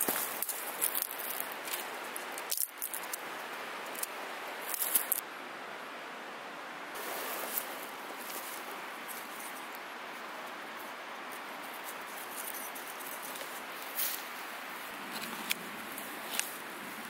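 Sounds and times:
dry twigs snapping: 0.0s - 3.3s, 3.9s - 5.2s
canvas tarp rustling: 7.0s - 9.3s.

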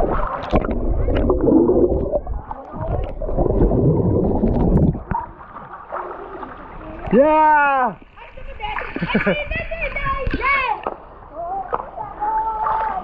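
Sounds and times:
muffled underwater churning: 0.0s - 7.2s.

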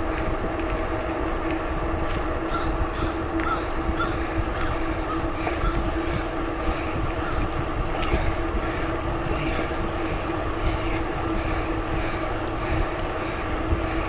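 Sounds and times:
rolling bicycle hum: 0.0s - 14.0s
wind rumbling on microphone: 0.0s - 14.0s
faint ticks: 12.8s - 13.2s.

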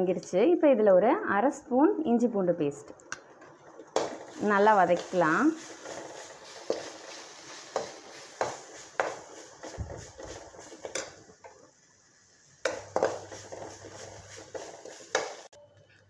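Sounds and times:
spoon scraping metal pan: 4.0s - 11.2s, 12.6s - 15.5s.

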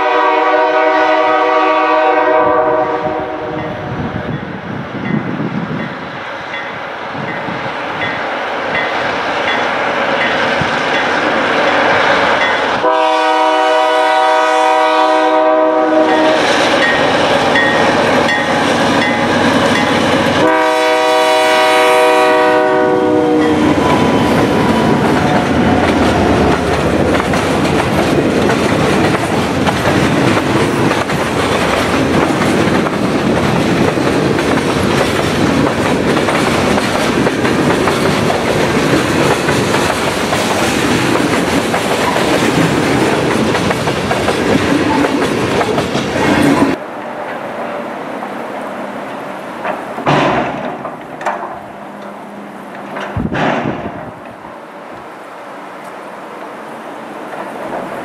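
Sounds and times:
train horn blasts: 0.0s - 3.9s, 12.8s - 16.6s, 20.3s - 26.8s
freight train passing: 0.0s - 58.0s.

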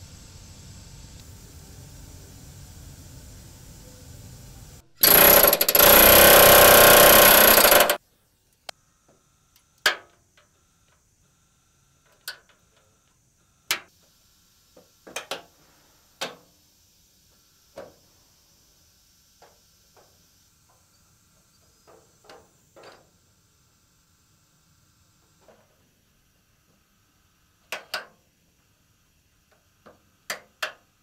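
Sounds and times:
sharp metallic clicks and clanks: 5.0s - 8.0s.

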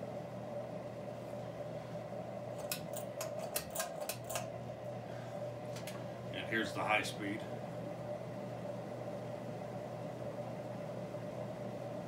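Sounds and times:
ceiling fan motor humming: 0.0s - 12.0s
speed switch clicking and rattling: 2.6s - 4.5s.

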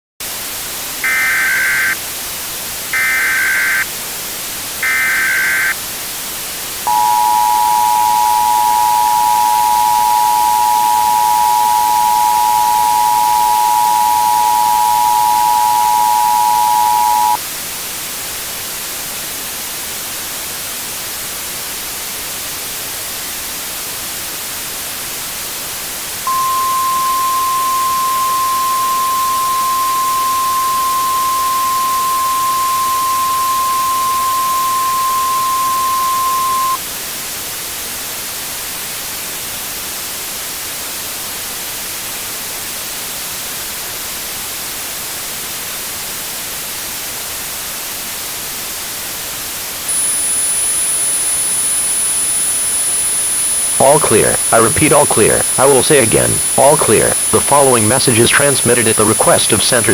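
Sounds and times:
static hiss: 0.2s - 59.9s
steady warning tone: 1.0s - 2.0s, 3.0s - 3.9s, 4.8s - 5.8s, 6.9s - 17.4s, 26.3s - 36.8s, 49.9s - 59.9s
two-tone alarm: 1.0s - 2.0s, 2.9s - 3.9s, 4.8s - 5.8s, 6.9s - 17.4s, 26.3s - 36.8s, 49.9s - 59.9s.

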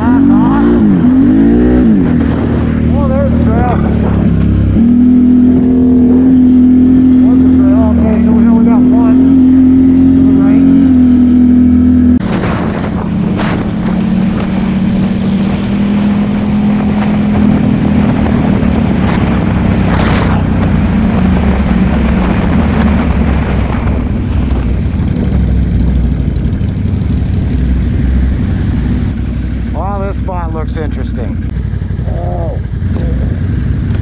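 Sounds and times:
wind noise on microphone: 0.0s - 7.2s, 10.9s - 29.6s
atv engine running: 0.0s - 34.0s.

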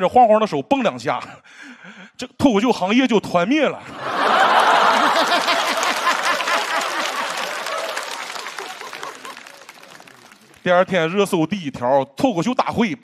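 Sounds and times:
audience laughing: 3.8s - 11.2s
audience applauding: 4.1s - 11.1s.

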